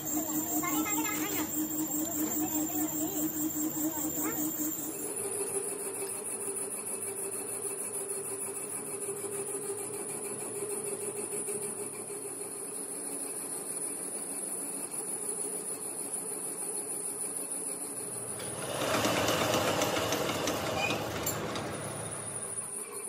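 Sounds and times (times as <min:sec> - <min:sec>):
high-pitched whine: 0:00.0 - 0:07.8
workshop machinery hum: 0:00.0 - 0:14.5, 0:17.1 - 0:23.0.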